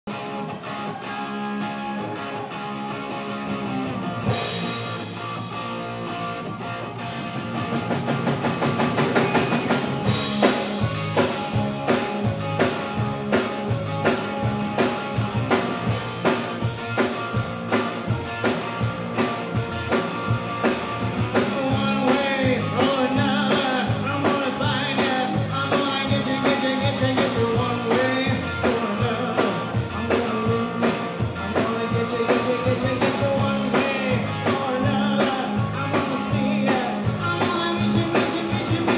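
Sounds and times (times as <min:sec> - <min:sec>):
electric guitar: 0:00.1 - 0:38.9
drum kit with cymbals: 0:04.2 - 0:06.0, 0:06.9 - 0:38.9
lead singer: 0:21.2 - 0:38.9.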